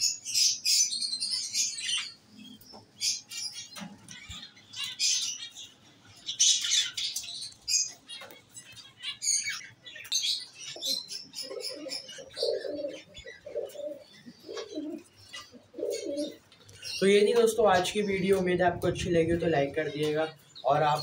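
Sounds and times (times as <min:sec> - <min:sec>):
pigeon cooing: 0:10.8 - 0:16.4.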